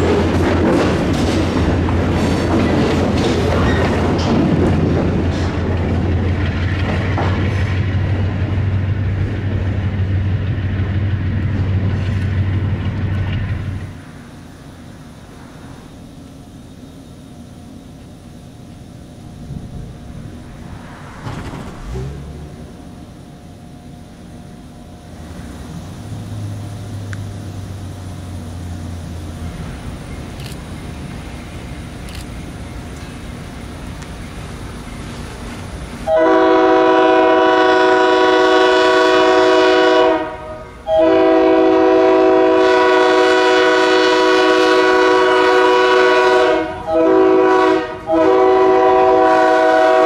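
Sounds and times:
diesel locomotive rumbling: 0.0s - 50.0s
train wheels clicking over rails: 0.0s - 50.0s
steady low drone: 5.8s - 36.0s.

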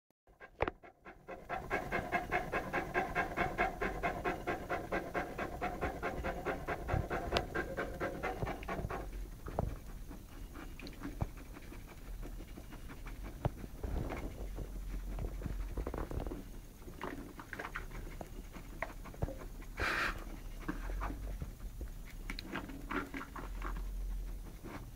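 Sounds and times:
puppy panting: 0.3s - 24.9s
soft breathing: 19.8s - 21.2s.

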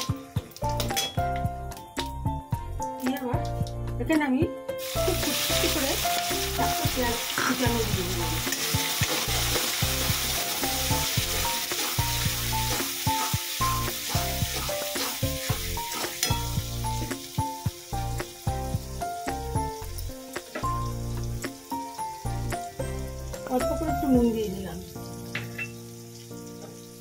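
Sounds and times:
onions sizzling in oil: 4.8s - 27.0s
metal spatula scraping pan: 14.0s - 16.5s.

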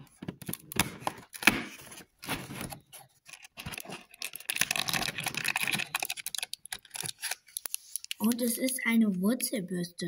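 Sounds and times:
cardboard tearing and rustling: 0.8s - 7.4s.

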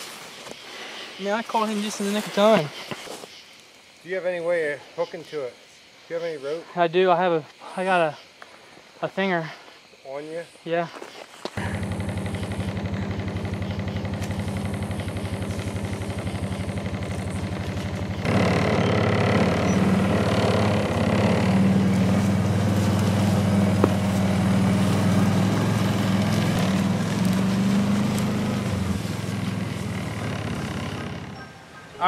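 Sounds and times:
vehicle engine idling: 11.6s - 31.8s.

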